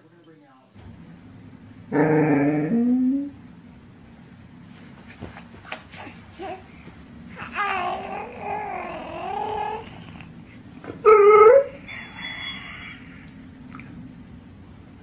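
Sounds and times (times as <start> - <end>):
rising coo: 1.9 - 3.4, 7.4 - 10.3
wavering moan-like call: 1.9 - 3.4, 11.0 - 13.4
dog whining: 7.4 - 10.4, 11.0 - 13.4.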